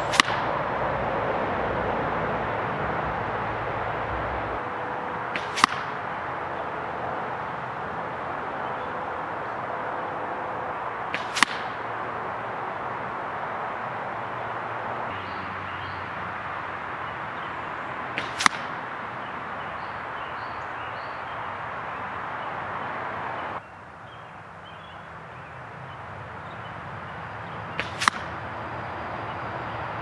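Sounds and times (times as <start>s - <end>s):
crossbow bolt striking foam target: 0.1s - 0.5s, 5.4s - 6.0s, 11.1s - 11.8s, 18.2s - 18.7s, 27.8s - 28.3s.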